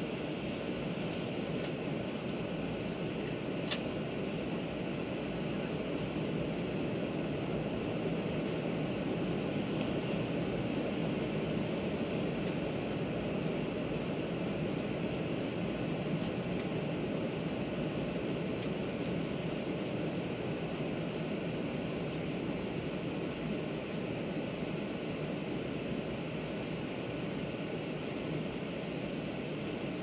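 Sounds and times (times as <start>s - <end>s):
train wheel and air rumble: 0.0s - 30.0s.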